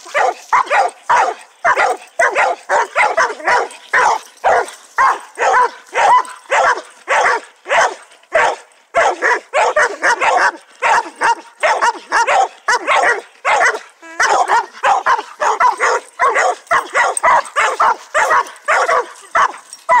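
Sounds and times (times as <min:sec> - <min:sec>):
dogs barking: 0:00.0 - 0:20.0.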